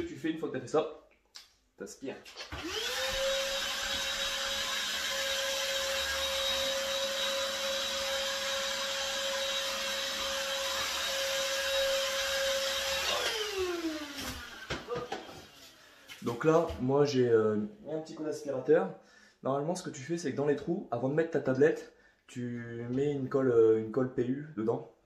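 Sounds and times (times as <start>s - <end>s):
handheld vacuum cleaner whining: 2.4s - 15.9s.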